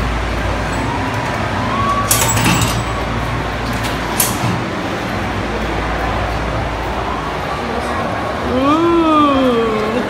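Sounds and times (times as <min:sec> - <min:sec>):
shopping mall background noise: 0:00.0 - 0:10.0.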